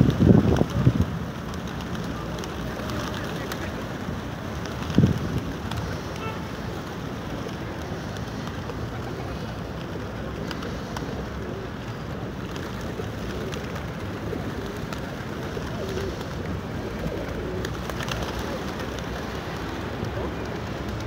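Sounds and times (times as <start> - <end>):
pigeon wings flapping: 0.0 - 21.0
steady background noise: 0.0 - 21.0
pigeons cooing: 5.5 - 21.0.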